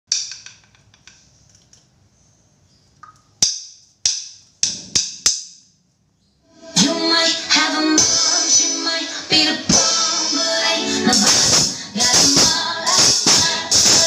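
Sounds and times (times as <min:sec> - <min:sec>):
song with singing: 0:06.5 - 0:14.0.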